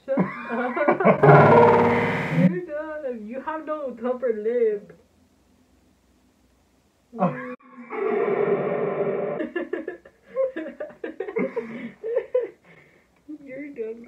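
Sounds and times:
people laughing: 0.2s - 1.2s.

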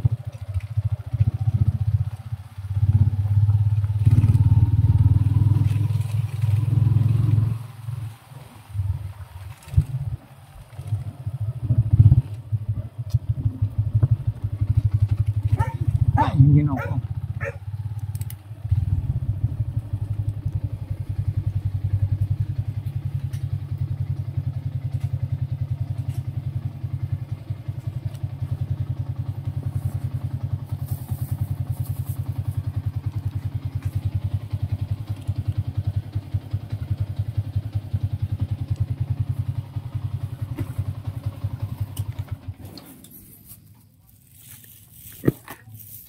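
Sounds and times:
small motorcycle engine putter: 0.0s - 1.7s, 17.4s - 18.5s, 24.8s - 26.6s, 30.8s - 36.0s, 40.4s - 46.0s.

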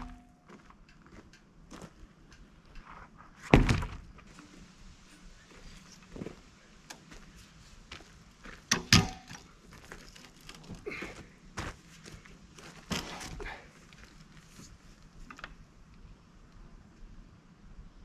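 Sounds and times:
heavy wooden thunks: 3.5s - 4.1s.

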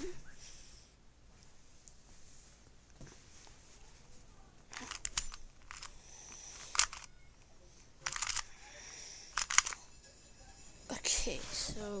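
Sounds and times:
plastic puzzle cube clicking: 4.7s - 7.2s, 8.0s - 8.5s, 9.3s - 9.8s.

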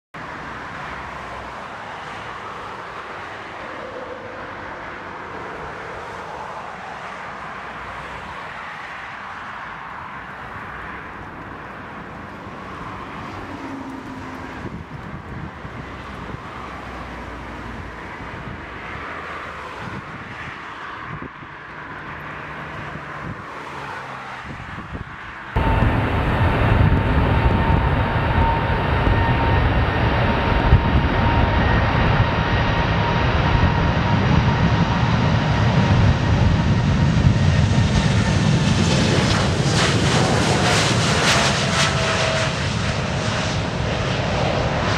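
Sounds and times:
jet engines rushing: 0.2s - 44.9s
wind rumbling on microphone: 11.2s - 17.0s, 17.6s - 23.6s, 24.3s - 44.9s.

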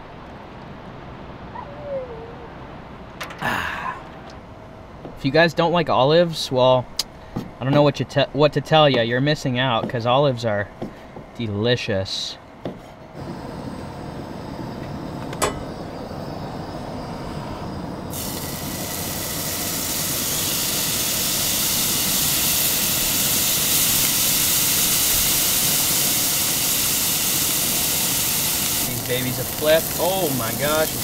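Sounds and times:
fish sizzling in a skillet: 18.1s - 31.0s.

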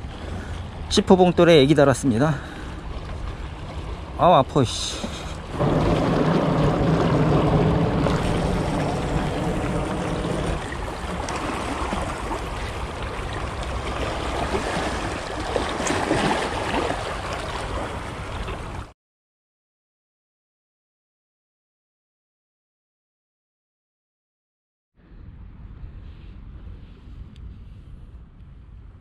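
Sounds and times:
water lapping against rocks: 2.4s - 18.9s
wind rumbling on microphone: 2.8s - 18.9s, 25.0s - 29.0s.

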